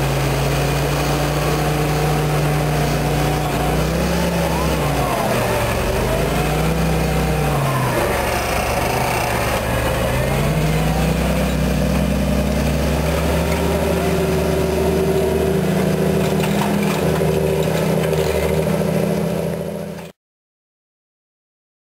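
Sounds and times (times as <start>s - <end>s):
tractor diesel engine under load: 0.0s - 20.2s.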